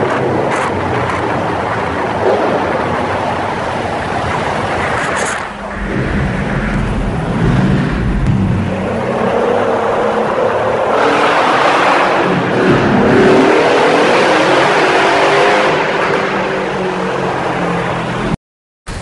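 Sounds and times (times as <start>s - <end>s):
rushing tunnel noise: 0.0s - 19.0s
motorbike engine accelerating: 5.5s - 14.6s.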